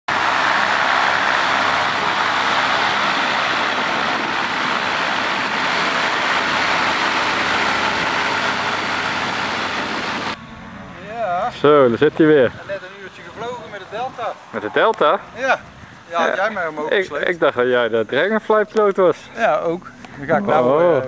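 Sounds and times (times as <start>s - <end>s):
aircraft engine droning: 0.1s - 11.0s.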